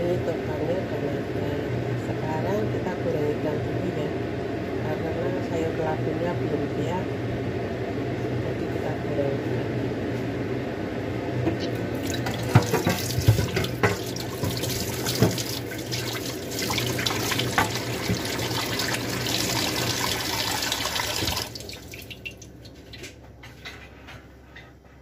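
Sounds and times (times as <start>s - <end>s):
kitchen tap running into sink: 11.8s - 23.1s.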